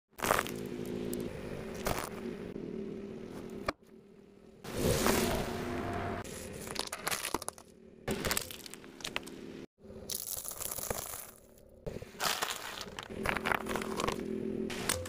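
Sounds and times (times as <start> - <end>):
tyre crunching small objects: 0.1 - 2.3, 6.2 - 15.0.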